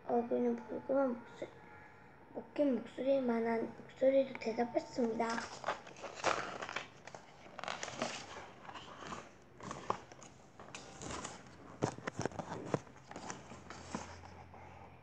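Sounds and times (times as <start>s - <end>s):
book pages rustling and turning: 4.9s - 14.7s.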